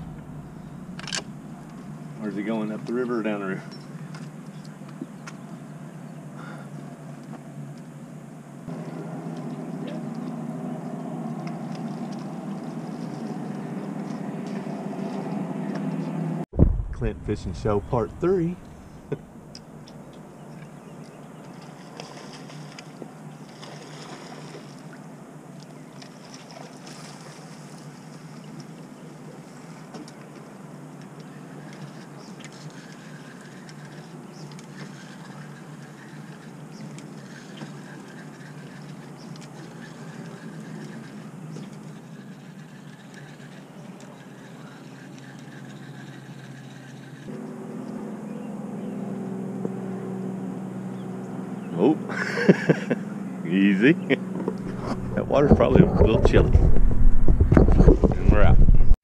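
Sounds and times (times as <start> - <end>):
wind on microphone: 0.0 - 1.8, 16.5 - 19.3, 54.5 - 59.0
rushing background noise: 0.0 - 2.3
low engine-like hum: 0.0 - 57.4
river water rumbling: 0.0 - 59.0
faint clicks and scrapes: 25.6 - 47.4, 54.4 - 59.0.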